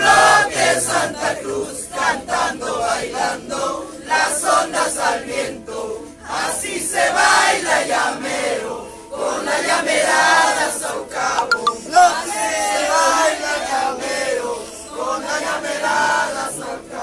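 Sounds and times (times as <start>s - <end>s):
crowd singing or chanting: 0.0s - 3.4s.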